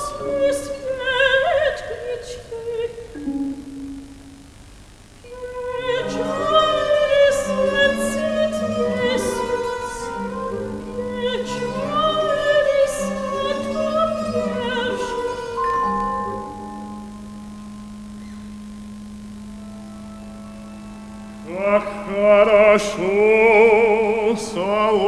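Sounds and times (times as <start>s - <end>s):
woman singing opera: 0.0s - 3.4s, 5.2s - 17.0s, 21.4s - 25.0s
soft orchestral accompaniment: 5.4s - 17.8s.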